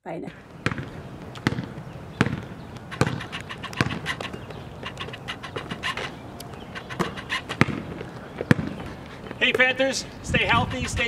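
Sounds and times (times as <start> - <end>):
basketball bouncing on asphalt: 0.3 - 11.0
light taps and scuffs: 3.0 - 11.0.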